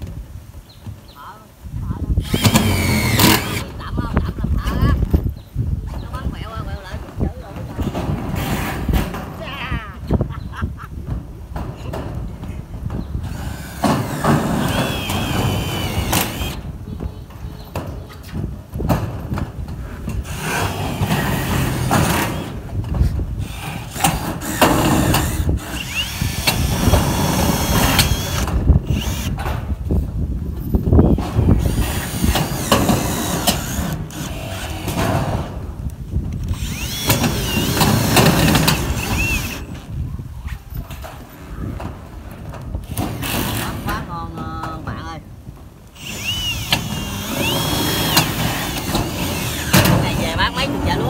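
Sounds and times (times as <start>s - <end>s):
drill driving screws into metal: 2.2s - 3.8s, 8.3s - 9.2s, 13.2s - 16.7s, 20.2s - 22.7s, 23.4s - 29.6s, 31.1s - 35.6s, 36.4s - 39.8s, 42.8s - 43.9s, 45.9s - 50.4s.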